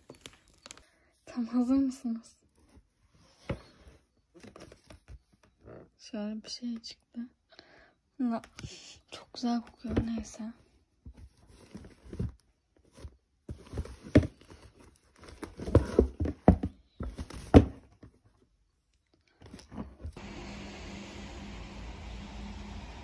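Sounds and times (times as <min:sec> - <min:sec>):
cardboard box being handled: 0:11.0 - 0:18.1.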